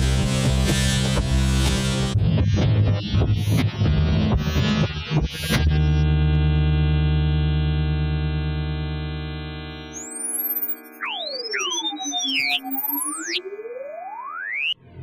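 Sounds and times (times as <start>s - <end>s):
pure tones sweeping up and down: 9.7s - 15.0s.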